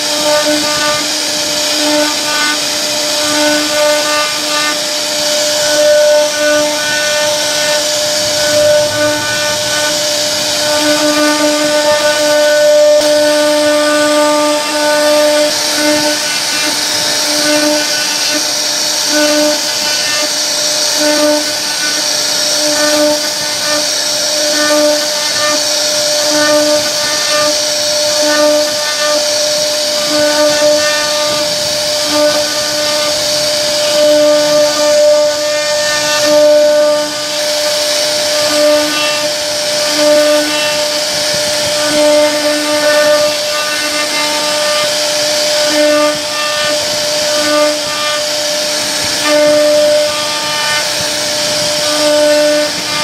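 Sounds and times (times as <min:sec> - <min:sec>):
bit cutting wood hiss: 0:00.0 - 0:53.0
router spindle whine: 0:00.0 - 0:53.0
low tone cutting in and out: 0:00.7 - 0:45.5.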